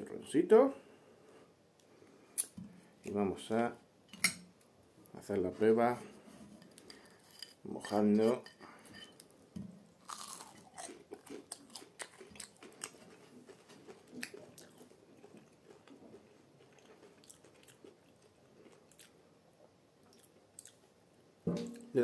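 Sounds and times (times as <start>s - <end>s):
person chewing crunchy food: 10.0s - 19.2s, 20.0s - 20.8s.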